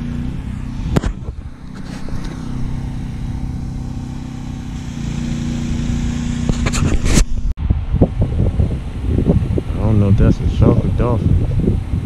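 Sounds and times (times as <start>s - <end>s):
motor engine idling: 0.0s - 6.7s.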